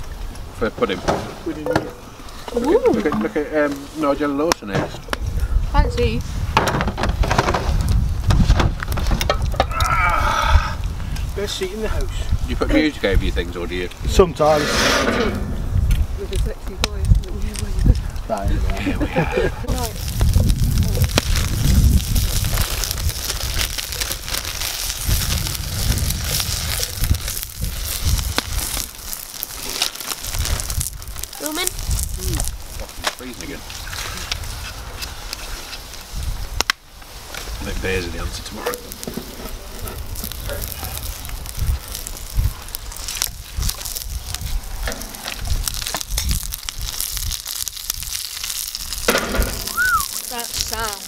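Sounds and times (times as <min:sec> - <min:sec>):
wood fire crackling: 0:00.0 - 0:51.0
low thumps: 0:14.8 - 0:16.2
food sizzling in a skillet: 0:18.8 - 0:51.0.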